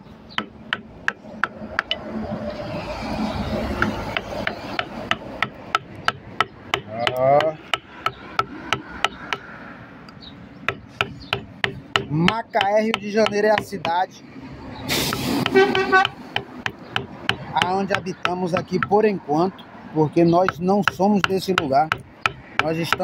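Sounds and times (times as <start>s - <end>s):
chisel tapping wood: 0.4s - 2.0s, 3.8s - 9.5s, 10.7s - 14.0s, 15.1s - 19.1s, 20.4s - 23.0s.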